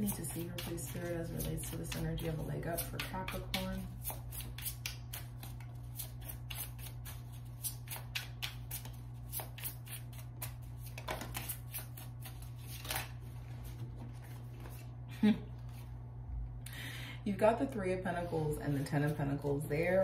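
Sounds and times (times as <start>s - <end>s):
cards being shuffled: 0.0s - 14.9s.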